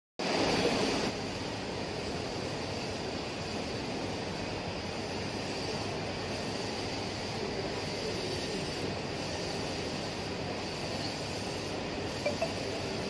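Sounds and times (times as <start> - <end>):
inkjet printer running: 6.2 - 13.0.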